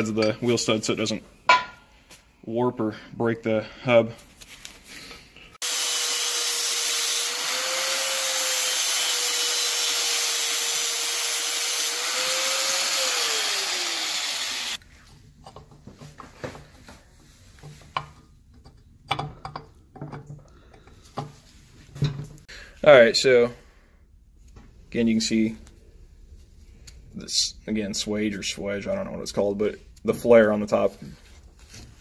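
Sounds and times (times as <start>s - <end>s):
angle grinder cutting steel: 5.6s - 14.8s
clinks and knocks of handling: 17.6s - 21.4s.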